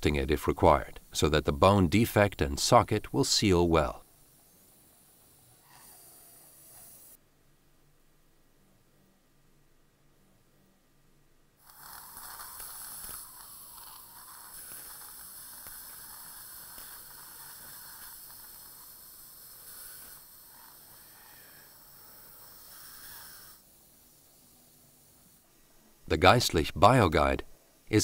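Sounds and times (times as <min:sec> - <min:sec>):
suction tip hissing: 0:00.2 - 0:07.2, 0:11.6 - 0:25.5.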